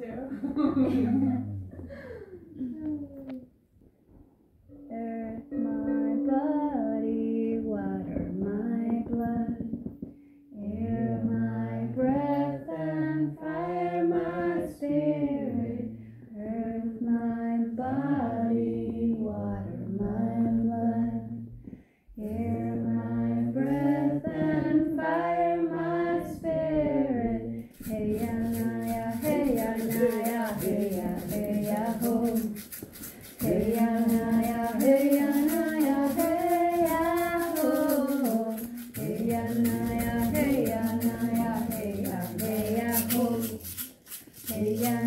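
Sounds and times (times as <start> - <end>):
voices singing a slow chant: 4.8 - 9.7, 10.5 - 43.7, 44.5 - 45.0
hand rattle shaking: 27.6 - 45.0.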